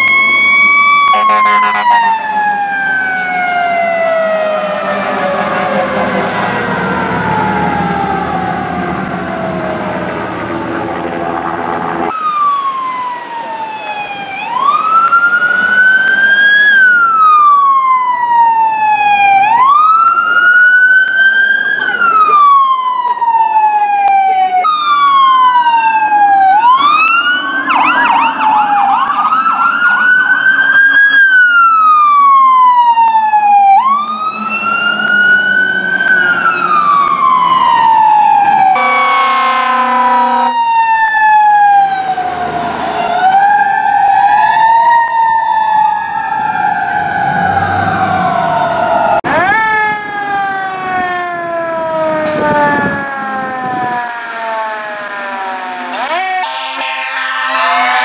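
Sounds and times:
fire truck sirens wailing: 0.0 - 58.0
horn blast: 1.1 - 2.2, 38.8 - 40.8, 55.9 - 58.0.

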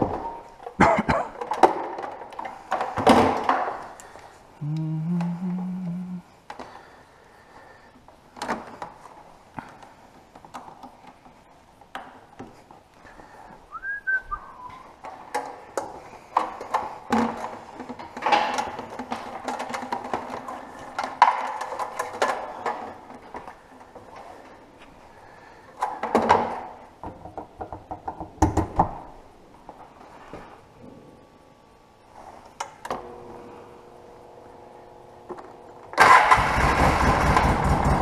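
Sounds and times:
faint steady hum: 0.0 - 36.4
whistled note gliding down: 13.7 - 14.8
hands clicking and rattling plastic: 15.0 - 23.6.

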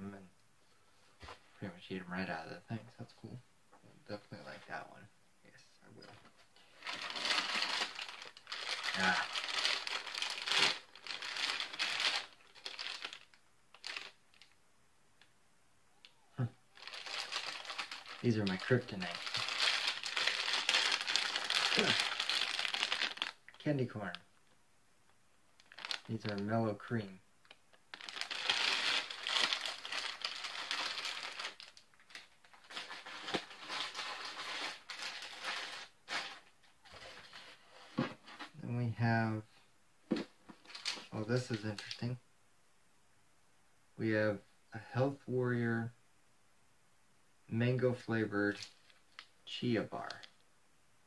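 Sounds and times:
plastic packaging rustling: 6.1 - 14.6, 16.7 - 23.9, 25.6 - 26.5, 27.4 - 38.6, 40.1 - 42.0
plastic bag crinkling: 6.6 - 14.6, 16.7 - 24.2, 25.6 - 26.5, 27.4 - 37.6, 40.1 - 42.0.

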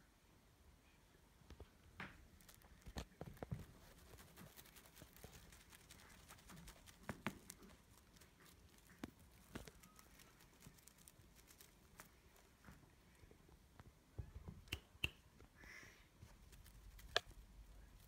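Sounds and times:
soft rustles: 1.4 - 14.0, 16.2 - 18.0.

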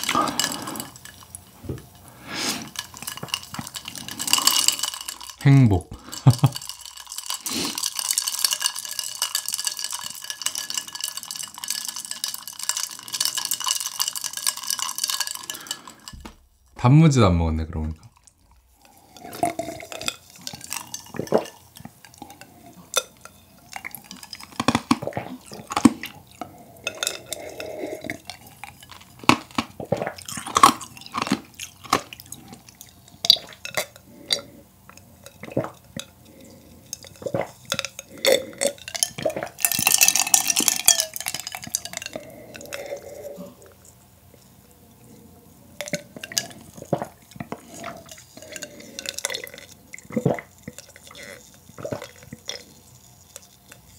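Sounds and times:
hissing sip: 0.0 - 8.4, 18.0 - 53.9
cup knocking: 16.2 - 16.6
gulping and swallowing: 35.3 - 39.6, 45.8 - 52.8.

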